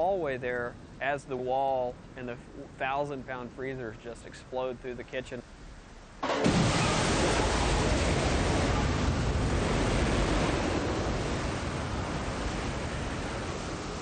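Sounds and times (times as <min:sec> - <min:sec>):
loud rushing wind: 0:06.2 - 0:14.0.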